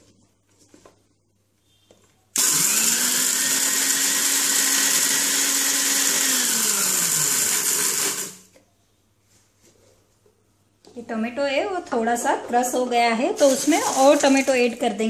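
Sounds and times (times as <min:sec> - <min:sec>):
mixer grinder motor grinding: 0:02.4 - 0:08.5.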